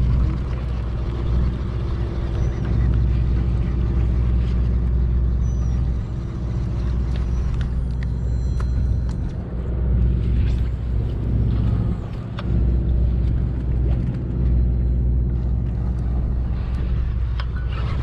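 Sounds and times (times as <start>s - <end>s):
boat engine droning: 0.0s - 18.0s.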